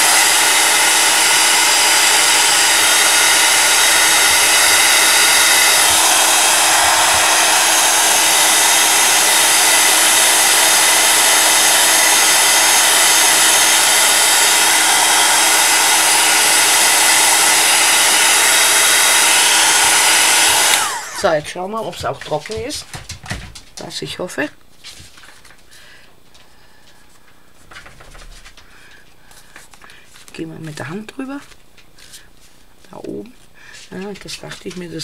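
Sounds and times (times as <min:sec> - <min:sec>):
heat tool blowing hot air: 0:00.0 - 0:21.6.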